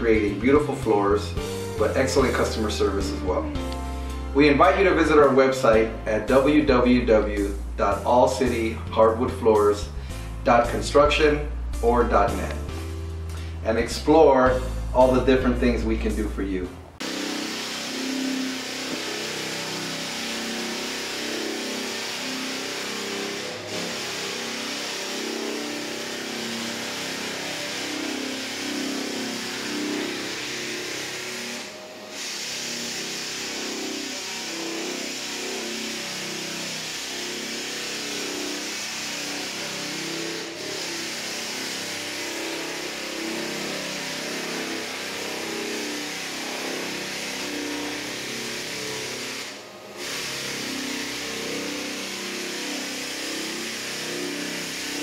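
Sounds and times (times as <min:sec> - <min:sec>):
floor sander grinding: 0:17.0 - 0:55.0.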